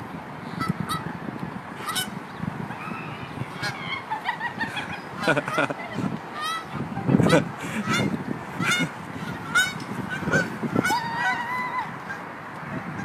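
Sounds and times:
geese honking: 1.8 - 5.7, 6.4 - 12.2.

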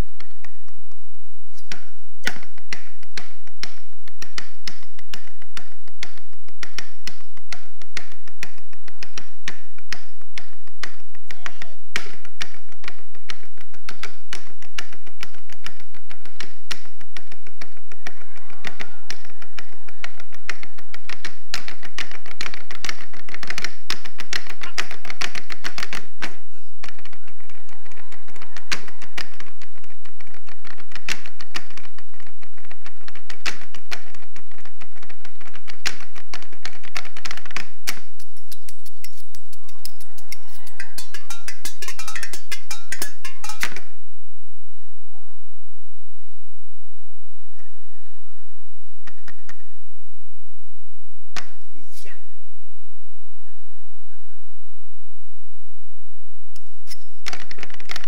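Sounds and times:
cleavers drumming on chopping boards: 39.6 - 43.8.

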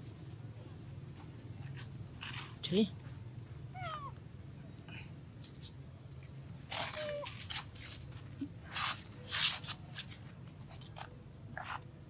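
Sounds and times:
rustling crunches on dry leaves: 6.6 - 11.0.

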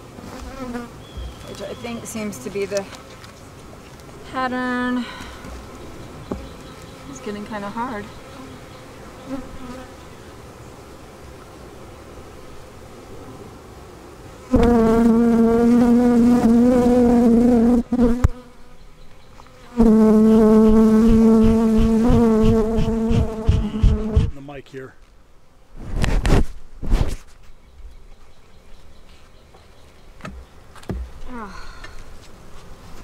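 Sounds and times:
bee buzzing: 0.0 - 3.3, 5.5 - 24.5.

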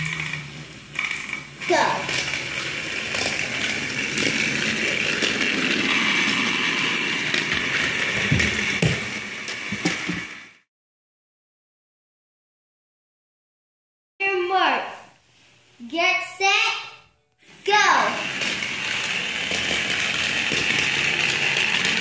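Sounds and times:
toy train motor whirring: 0.0 - 10.6, 17.5 - 22.0.

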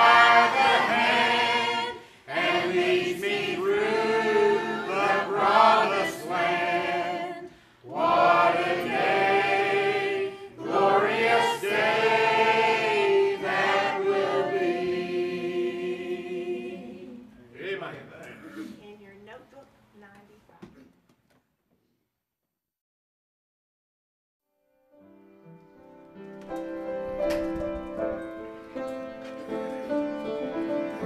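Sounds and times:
church choir singing: 0.0 - 17.4.

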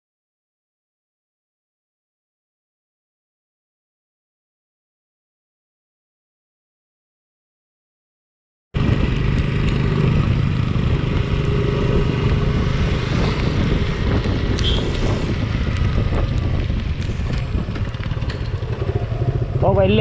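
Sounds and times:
motorcycle engine running: 8.8 - 20.0
wind on microphone: 8.8 - 20.0.

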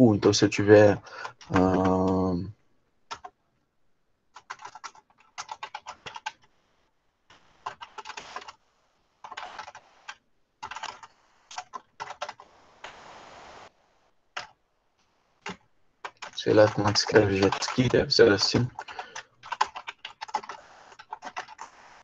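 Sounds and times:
typing on computer keyboard: 1.0 - 2.3, 3.1 - 3.4, 4.3 - 6.5, 7.6 - 8.6, 9.2 - 12.4, 15.4 - 21.8.

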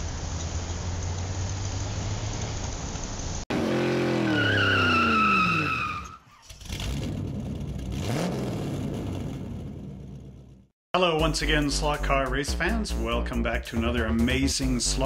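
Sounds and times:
steady hiss: 0.0 - 3.4
car engine sound effect: 0.6 - 10.7
high tyre squeal: 3.6 - 6.7.

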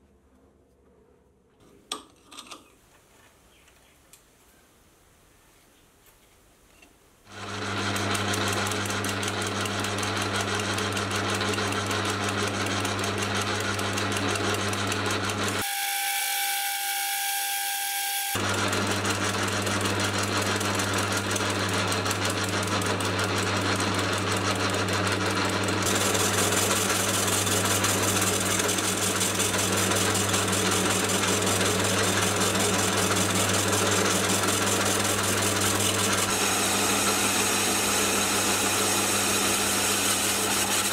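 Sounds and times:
lathe motor and gear hum: 7.3 - 15.6, 18.4 - 40.9
cutter shaving wood hiss: 25.2 - 40.9.

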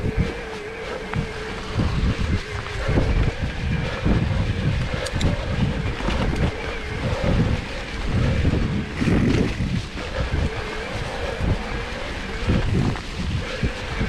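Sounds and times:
bike rattling: 0.0 - 14.0
bike tyres on dirt trail: 0.0 - 14.0
wind buffeting microphone: 0.0 - 14.0
sharp ticks: 4.7 - 7.5.

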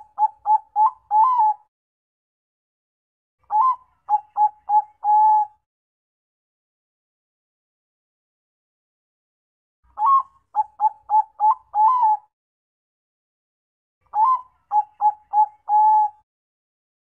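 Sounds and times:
dove cooing: 0.0 - 1.7, 3.5 - 5.6, 10.0 - 12.3, 14.1 - 16.2.

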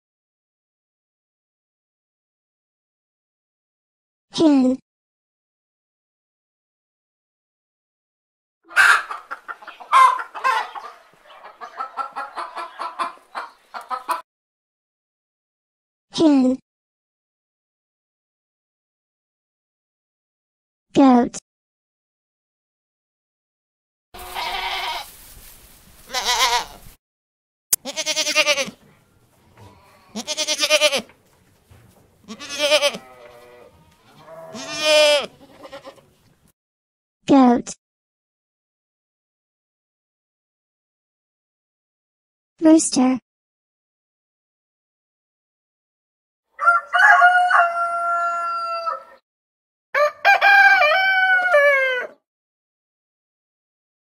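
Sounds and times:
rooster crowing: 8.7 - 9.2, 9.9 - 13.5, 46.6 - 49.2, 50.0 - 52.2
goats bleating: 24.2 - 25.2, 26.0 - 26.9, 27.8 - 31.2, 32.2 - 36.1.

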